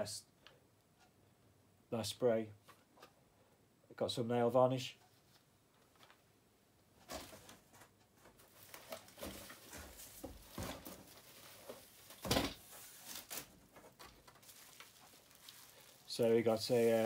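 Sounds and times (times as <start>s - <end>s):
packaging rustling: 7.1s - 17.0s
rummaging in cardboard box: 8.4s - 17.0s.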